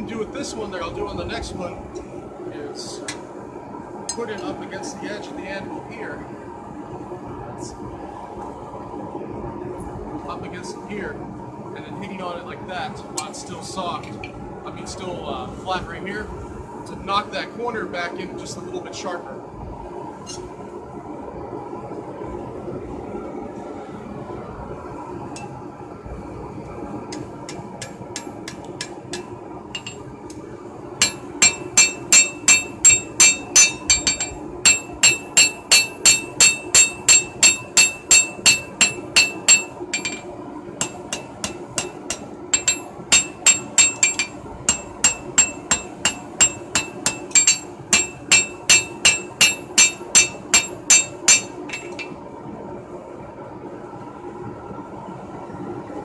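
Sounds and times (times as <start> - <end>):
hammer ringing on anvil: 27.8 - 30.0, 31.0 - 52.1.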